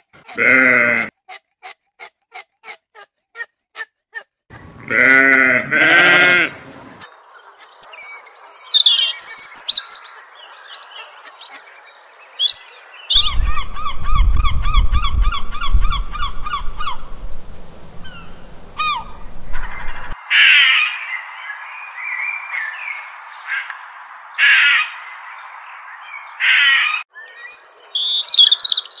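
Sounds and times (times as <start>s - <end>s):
sheep bleating: 0.2s - 1.1s, 4.8s - 6.6s
birds chirping and singing: 6.0s - 29.0s
wind rumble on microphone: 13.1s - 20.2s.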